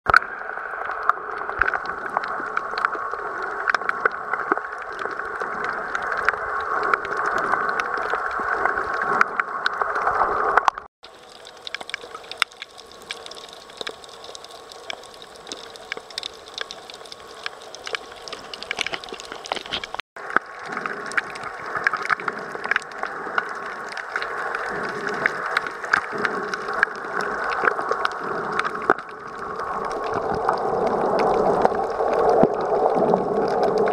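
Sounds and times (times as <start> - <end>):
muffled underwater hiss: 0.1 - 33.9
small crackles and clicks: 0.1 - 33.9.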